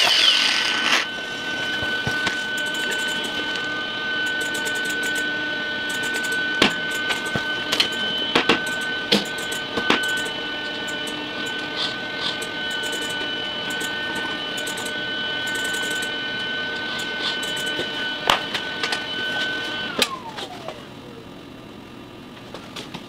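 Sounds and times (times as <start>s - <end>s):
electric motor whining: 0.0s - 21.6s.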